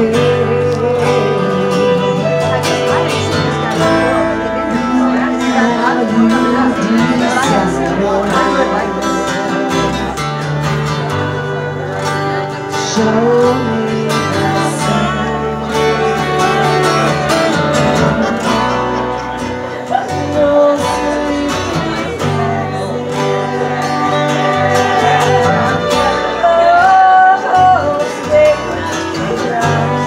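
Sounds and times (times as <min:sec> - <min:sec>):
bass guitar: 0:00.0 - 0:30.0
strummed acoustic guitar: 0:00.0 - 0:30.0
women singing together: 0:19.9 - 0:30.0.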